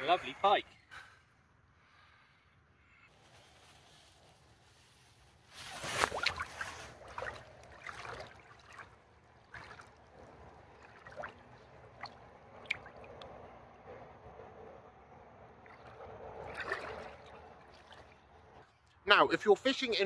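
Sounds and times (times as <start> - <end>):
trickles of water: 5.6 - 19.0
fish splashing in water: 5.9 - 13.2, 15.6 - 18.3.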